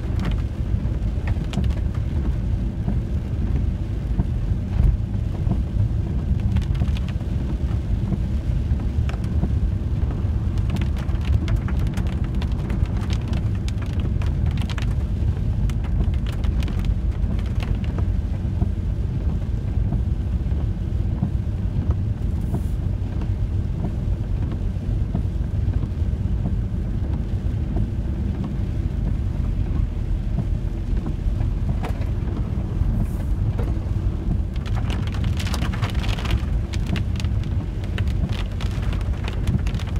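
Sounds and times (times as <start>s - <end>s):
engine and road rumble: 0.0s - 39.9s
rain ticks: 0.0s - 39.9s.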